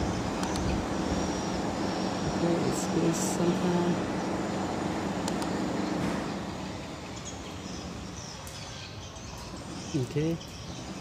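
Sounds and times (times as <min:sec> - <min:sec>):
engine drone: 0:00.0 - 0:11.0
light clicks: 0:00.4 - 0:00.7, 0:05.2 - 0:05.5.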